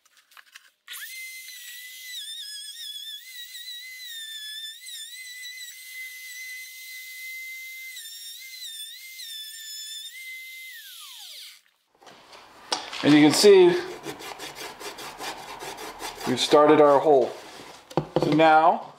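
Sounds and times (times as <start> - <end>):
router whining cutting wood: 0.9 - 11.6, 13.1 - 17.3.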